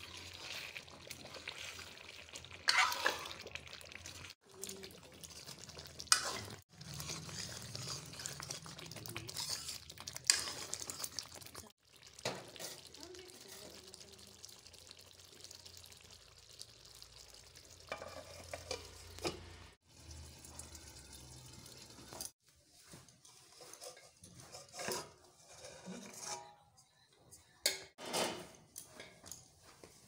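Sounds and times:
gravy sizzling: 0.0 - 25.9
cookware scraping and clinking: 2.5 - 13.8, 17.8 - 19.7, 23.0 - 29.8.

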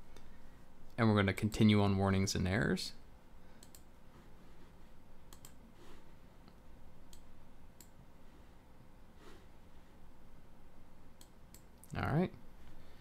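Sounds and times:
computer mouse clicks: 3.6 - 3.9, 5.3 - 5.6, 6.4 - 8.0, 11.2 - 11.9.

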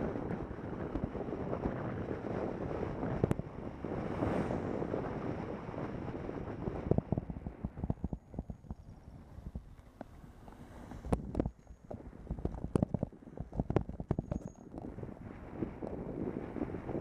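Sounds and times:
tyres rumbling on asphalt: 0.0 - 17.0
wind buffeting microphone: 0.0 - 17.0
bike rattling on rough pavement: 7.0 - 16.2.

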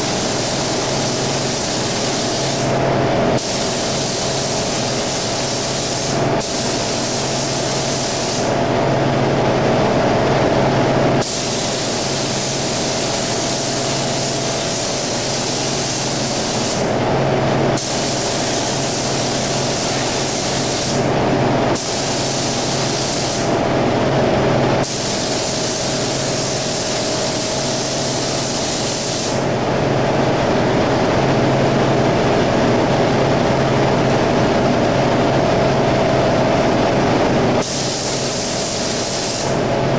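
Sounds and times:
spray gun hissing: 0.0 - 2.8, 3.4 - 8.6, 11.2 - 17.0, 17.8 - 21.1, 21.8 - 23.6, 24.8 - 29.5, 37.6 - 39.6
mechanical hum: 0.0 - 39.9.

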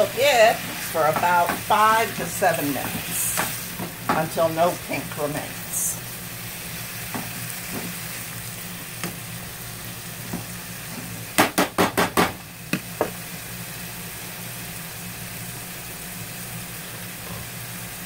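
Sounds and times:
meat and peppers sizzling in a pan: 0.0 - 18.0
spatula knocking on a pan: 1.1 - 1.8, 11.4 - 12.4.

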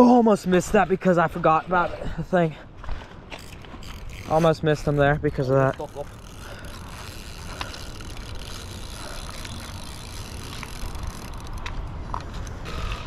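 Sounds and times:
fishing reel whirring: 3.4 - 11.7, 12.6 - 13.0.

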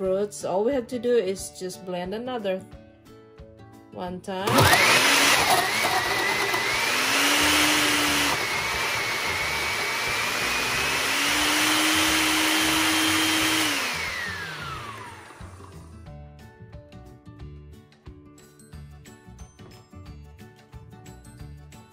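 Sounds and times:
blender motor whining: 4.4 - 15.9.

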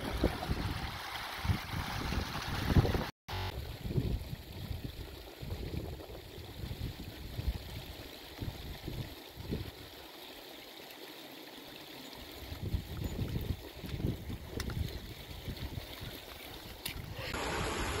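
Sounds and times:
stream trickling over stones: 0.0 - 18.0.

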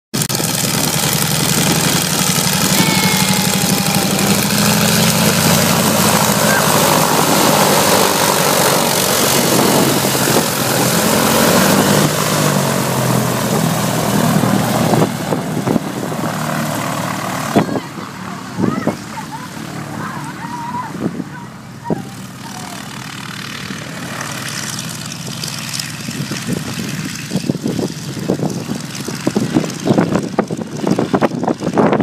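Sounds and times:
biplane engine and propeller: 0.1 - 32.0.

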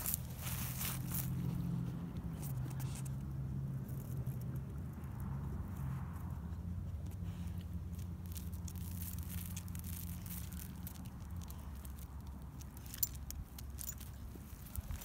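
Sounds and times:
dry leaves rustling: 0.0 - 3.0, 7.3 - 15.0
dog claws ticking on concrete: 7.1 - 15.0.

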